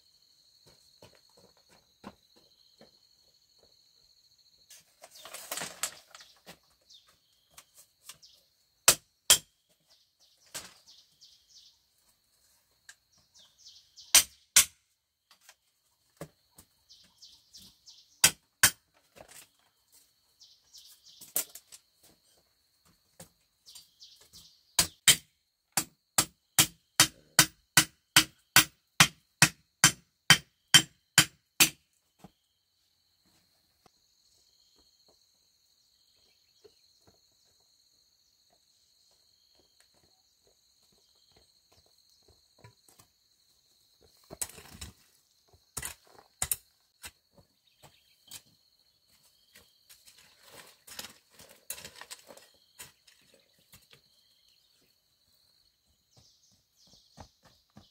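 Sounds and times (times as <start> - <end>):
crickets chirping: 0.0 - 57.9
tool knocking on bamboo: 14.1 - 14.8, 24.8 - 31.8.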